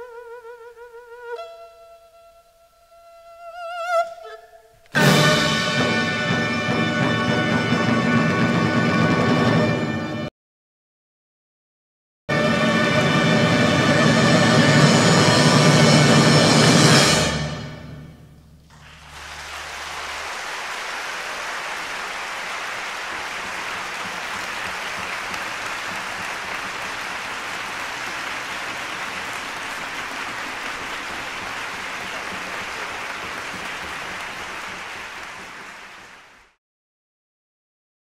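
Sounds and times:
audience applause: 0:18.7 - 0:36.6.

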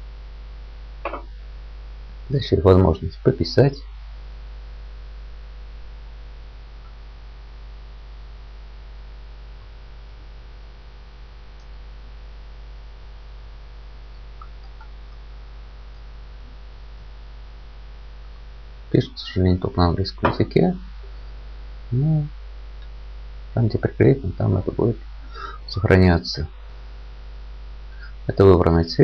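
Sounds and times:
electrical mains hum: 0:00.0 - 0:29.0
even hiss: 0:18.9 - 0:22.4, 0:23.6 - 0:26.7, 0:27.9 - 0:29.0.

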